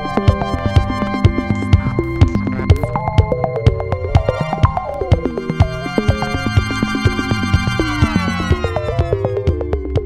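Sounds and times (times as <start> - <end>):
synthesizer melody: 0.0 - 9.6
electronic drum beat: 0.0 - 10.0.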